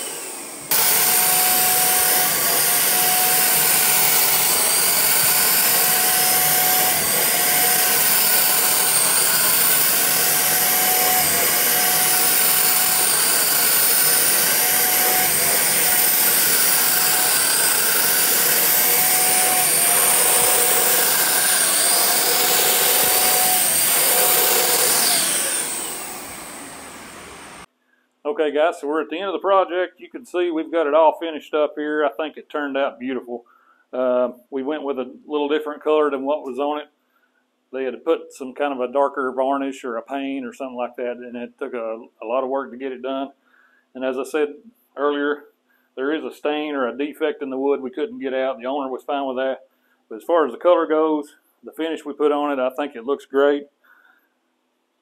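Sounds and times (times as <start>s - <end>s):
paint sprayer motor whine: 0.0s - 27.7s.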